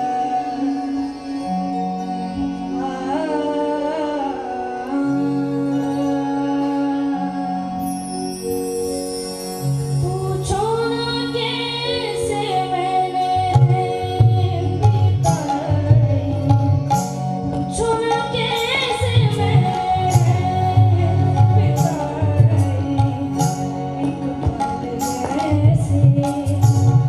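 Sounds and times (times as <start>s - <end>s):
boy singing into microphone: 0.0s - 1.3s, 2.7s - 7.8s, 10.0s - 27.0s
instrumental accompaniment: 0.0s - 27.0s.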